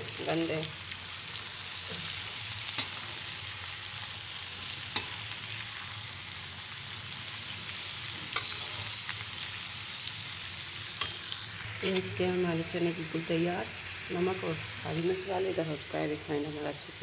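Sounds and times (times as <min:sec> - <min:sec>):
chickpeas sizzling in oil: 0:00.0 - 0:17.0
metal spoon clinking pan: 0:08.3 - 0:08.8, 0:11.8 - 0:12.2.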